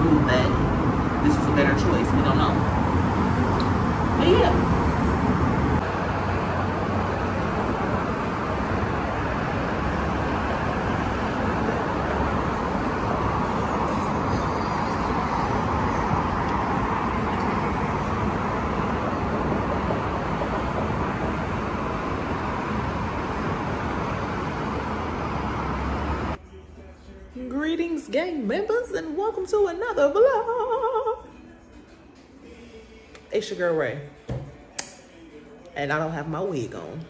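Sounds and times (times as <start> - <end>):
road traffic passing cars: 0.0 - 28.6.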